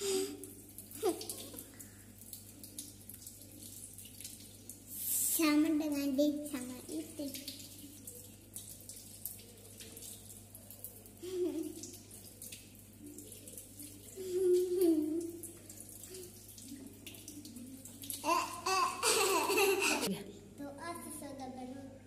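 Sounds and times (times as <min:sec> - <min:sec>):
water running from tap splashing: 0:00.0 - 0:20.1.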